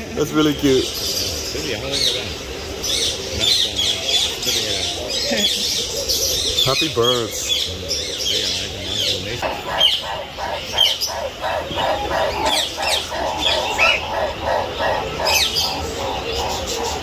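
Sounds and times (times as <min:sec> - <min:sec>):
birds chirping and calling: 0:00.0 - 0:17.0
fast repeated lower bird call: 0:08.8 - 0:17.0.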